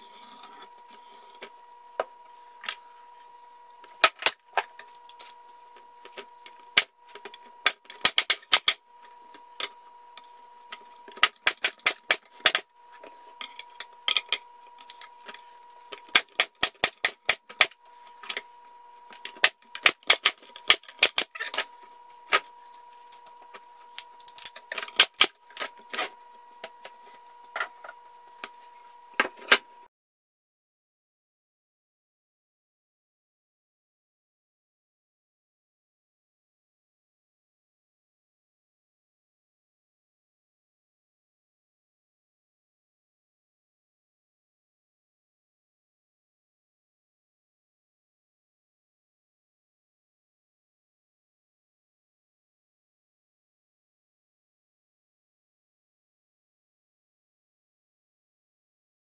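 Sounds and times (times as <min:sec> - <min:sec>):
faint steady hum: 0:00.0 - 0:29.9
staple gun firing into wood: 0:07.6 - 0:08.8, 0:11.2 - 0:12.6, 0:16.1 - 0:17.7, 0:19.4 - 0:21.3, 0:24.9 - 0:25.3.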